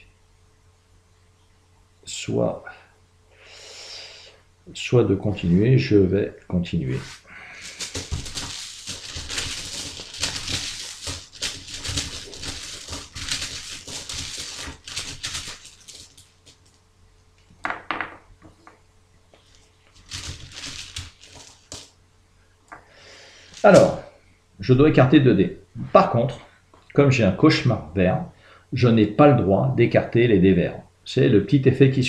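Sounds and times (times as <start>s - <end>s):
dice rattling in a bag: 7.0s - 16.6s, 20.0s - 21.9s, 23.5s - 24.0s.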